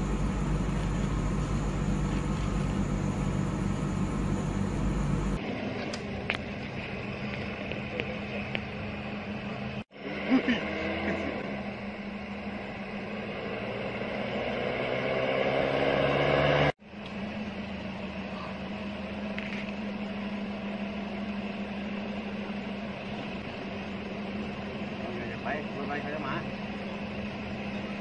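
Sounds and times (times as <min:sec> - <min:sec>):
steady engine hum: 0:00.0 - 0:28.0
vehicle engine and tyres approaching: 0:00.0 - 0:28.0.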